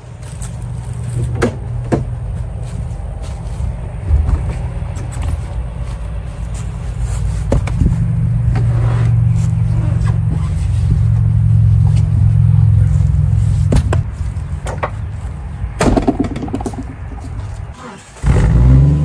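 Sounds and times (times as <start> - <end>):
clicks and knocks: 15.8 - 17.4.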